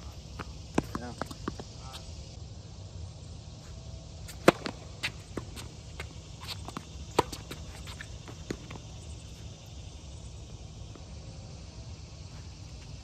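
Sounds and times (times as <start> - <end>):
quiet outdoor background: 0.0 - 13.0
ball and shoe clicks on court: 0.4 - 1.7, 4.3 - 8.9.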